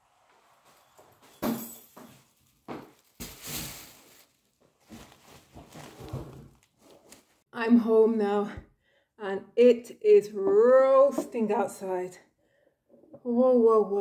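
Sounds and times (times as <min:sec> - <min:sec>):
footsteps: 0:00.6 - 0:07.4
cloth and bag rustling: 0:02.0 - 0:07.4.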